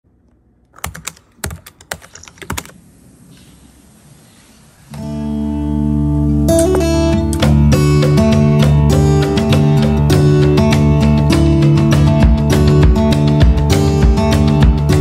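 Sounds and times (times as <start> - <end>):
keyboard key clicks: 0.7 - 2.8
soft guitar music: 4.9 - 15.0.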